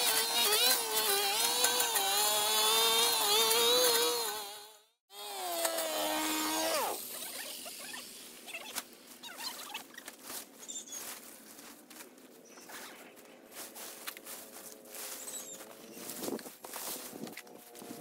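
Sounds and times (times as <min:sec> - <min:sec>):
small engine winding down: 0:00.0 - 0:08.0.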